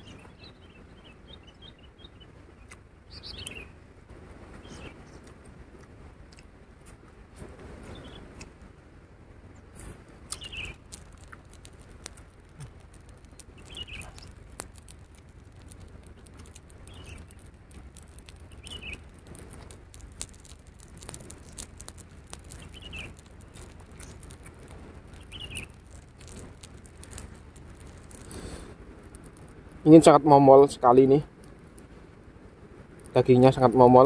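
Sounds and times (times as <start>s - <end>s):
bird chirping: 0.0s - 3.8s, 4.6s - 5.2s, 7.9s - 8.3s, 10.3s - 19.2s, 19.9s - 29.6s
person eating close-up: 9.8s - 29.5s.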